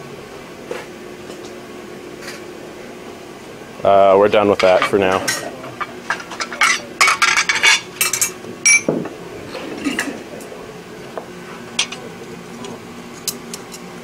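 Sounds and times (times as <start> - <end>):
metal tools clinking on anvil: 6.1 - 8.9.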